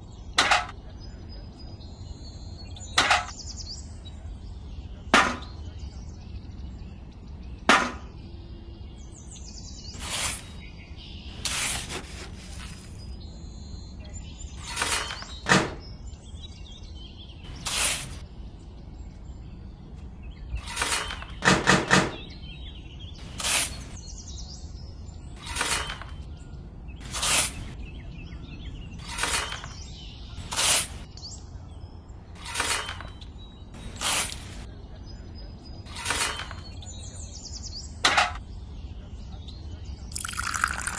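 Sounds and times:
sharp knocks: 5.1 - 5.6, 7.7 - 8.2, 20.7 - 22.3
small shovel scraping sand: 9.9 - 10.7, 11.3 - 13.2, 14.6 - 15.4, 17.5 - 18.2, 23.2 - 24.0, 25.4 - 26.2, 27.0 - 27.8, 29.0 - 31.1, 32.4 - 33.2, 33.8 - 34.7, 35.9 - 36.8.

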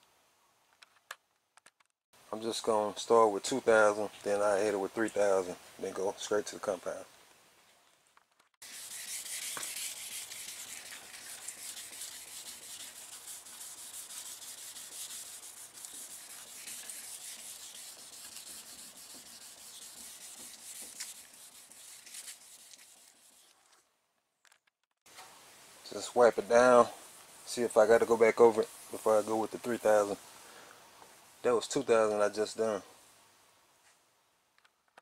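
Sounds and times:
sandpaper scrubbing hiss: 8.6 - 23.6, 25.9 - 30.3.

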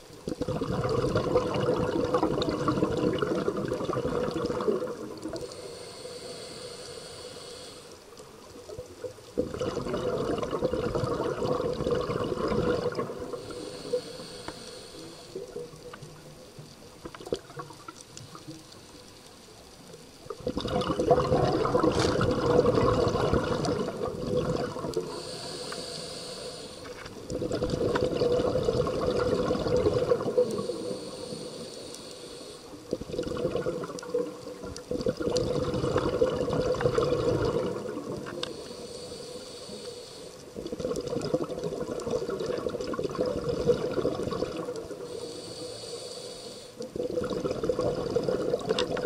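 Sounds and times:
bubbling exhaust: 0.4 - 5.6, 9.4 - 14.2, 20.4 - 25.3, 27.3 - 31.1, 32.9 - 38.4, 40.6 - 45.0, 46.9 - 49.0
regulator hissing inhale: 5.3 - 8.2, 12.8 - 15.9, 25.0 - 27.2, 30.2 - 32.9, 38.3 - 40.6, 44.8 - 46.9.

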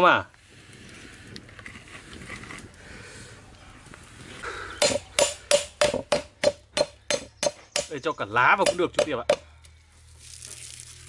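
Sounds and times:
sharp ringing knocks: 4.8 - 8.0, 8.6 - 9.4.

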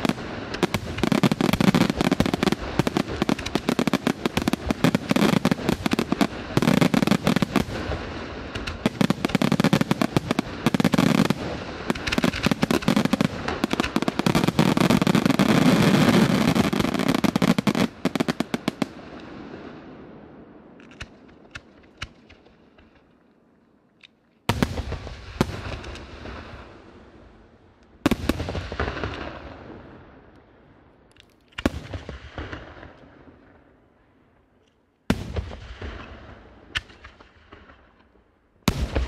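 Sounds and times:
fireworks bursting: 0.0 - 19.9, 24.5 - 26.9, 28.0 - 29.9, 38.6 - 39.0.

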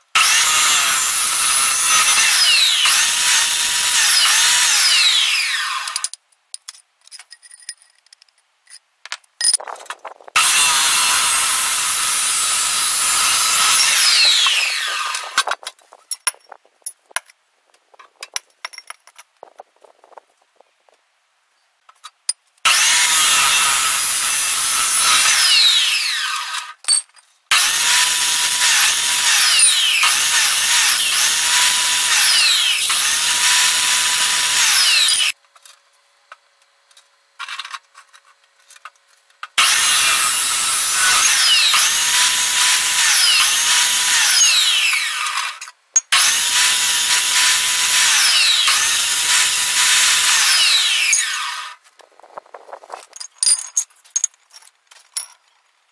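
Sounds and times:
chop saw grinding metal: 0.2 - 6.1, 10.4 - 15.6, 22.7 - 26.7, 27.5 - 35.4, 39.6 - 51.8.

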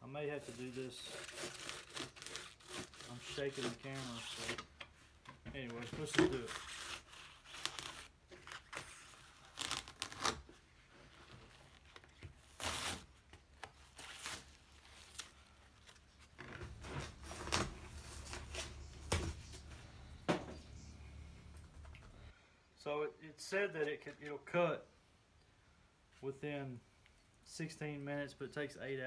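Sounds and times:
hand saw cutting foam: 0.4 - 4.6.

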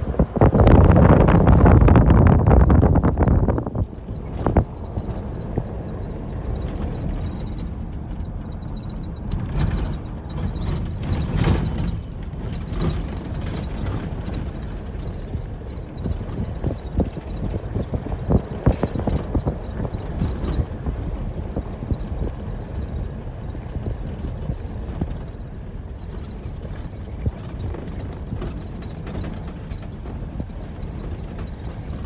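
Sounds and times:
car knocks and rattles: 0.0 - 10.8, 12.4 - 32.0
car rumbling on dirt road: 0.0 - 32.0
high-pitched squeal: 9.8 - 13.0.

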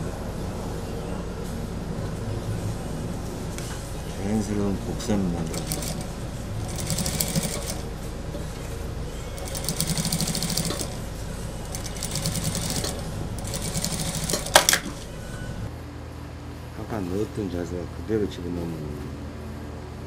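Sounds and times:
sewing machine stitching: 5.4 - 7.8, 9.4 - 14.8.

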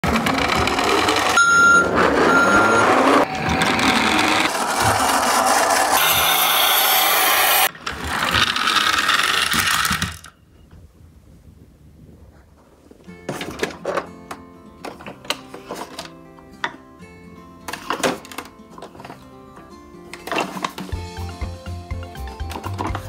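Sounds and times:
toy truck sound effects: 0.0 - 10.4
reversing beeps: 1.4 - 4.4, 6.0 - 6.9.

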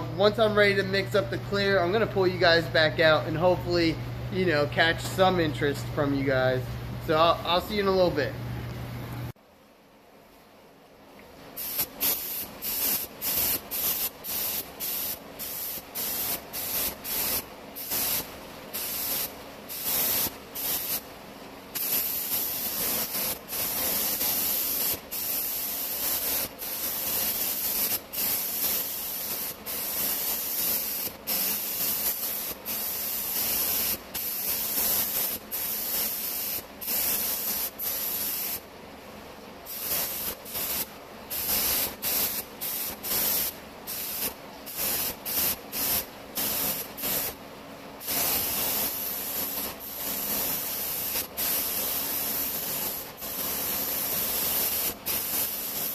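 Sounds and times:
paint spray gun hissing: 11.6 - 21.1, 21.8 - 38.6, 39.7 - 47.4, 48.0 - 55.9.

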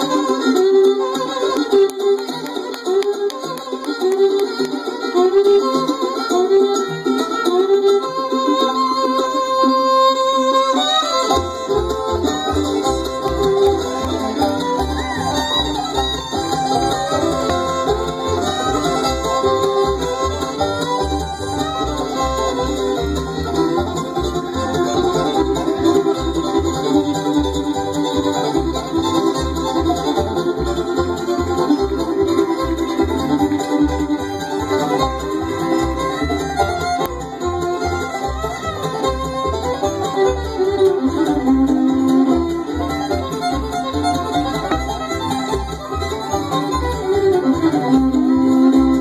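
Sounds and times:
bluegrass band playing: 0.0 - 49.0.

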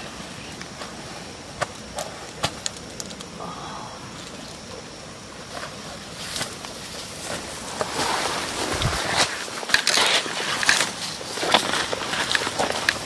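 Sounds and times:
leafy brush rustling: 4.1 - 13.0.

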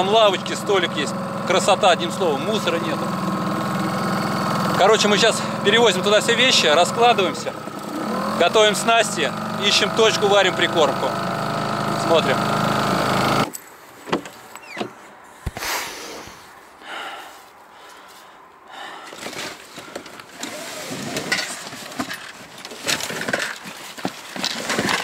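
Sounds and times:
outboard motor running: 0.0 - 13.5.

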